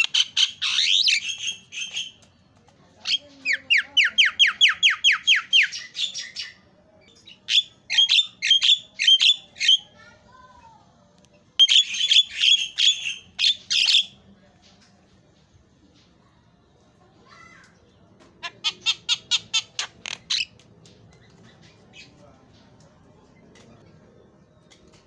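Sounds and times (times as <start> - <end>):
bird harsh chattering: 0.0 - 2.2, 3.0 - 6.6, 11.6 - 14.2, 18.4 - 20.6.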